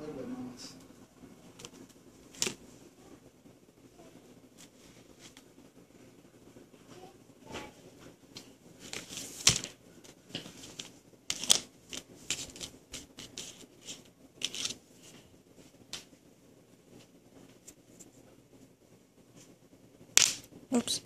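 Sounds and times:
paper rustling: 1.6s - 2.7s, 8.8s - 15.2s.

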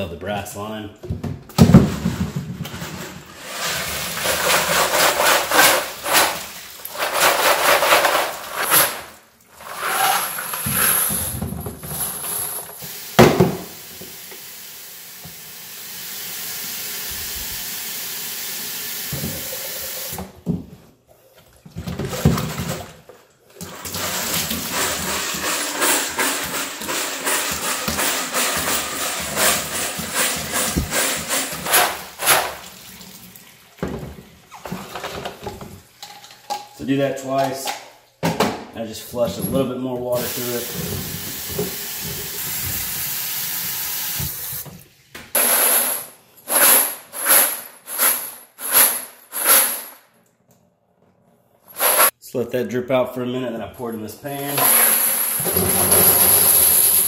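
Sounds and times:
water poured into sink: 23.5s - 27.0s.

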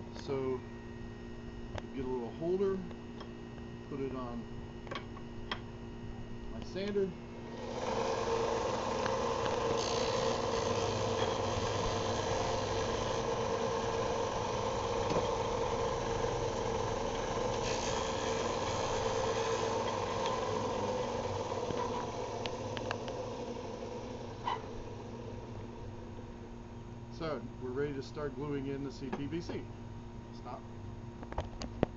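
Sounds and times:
bench sander sanding plastic pipe: 7.5s - 25.8s.

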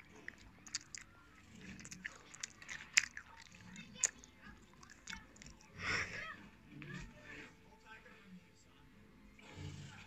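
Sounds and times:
sharp clicks and crunches: 0.0s - 5.7s.

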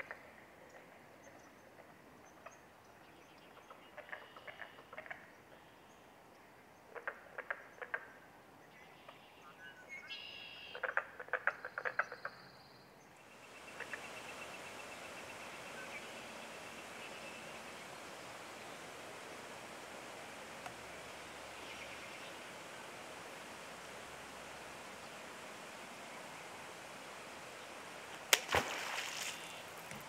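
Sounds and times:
frogs clicking calls: 3.6s - 5.3s, 6.9s - 8.2s, 10.7s - 12.4s, 13.6s - 14.2s
bird chirps: 8.7s - 10.9s
steady hiss: 13.1s - 30.0s.

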